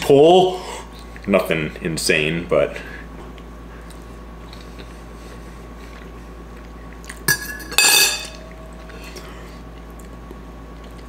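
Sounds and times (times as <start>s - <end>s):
fork clattering on plate: 7.3s - 8.4s.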